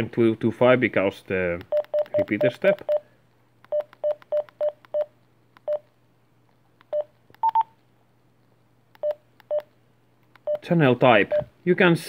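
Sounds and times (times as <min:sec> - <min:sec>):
radio keypad beeps: 0:01.7 - 0:03.0, 0:06.9 - 0:07.7.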